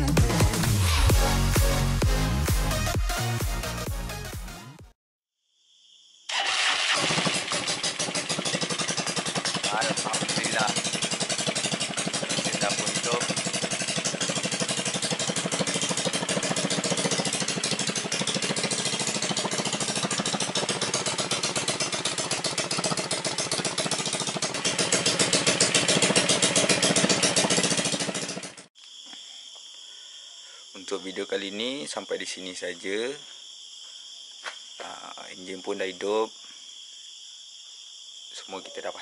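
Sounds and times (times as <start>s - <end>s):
go-kart engine running: 6.3s - 28.7s.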